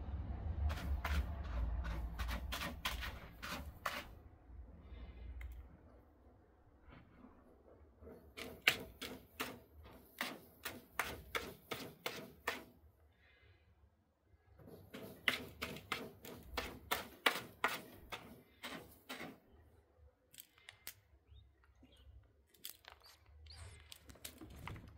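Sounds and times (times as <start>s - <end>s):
kitten scraping cat litter: 0.6s - 4.2s, 8.0s - 12.8s, 14.6s - 19.6s.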